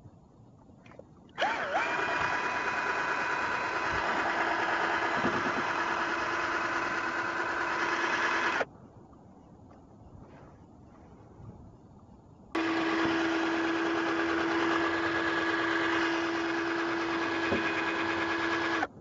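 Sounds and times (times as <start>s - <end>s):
propeller churning water: 0.8s - 8.7s, 12.6s - 19.0s
cordless drill motor whine: 1.4s - 8.7s, 12.6s - 19.0s.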